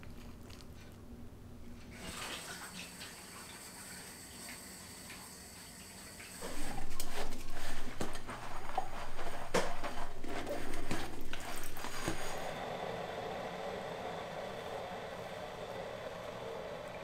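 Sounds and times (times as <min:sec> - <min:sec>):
water splashing in sink: 0:01.9 - 0:12.5.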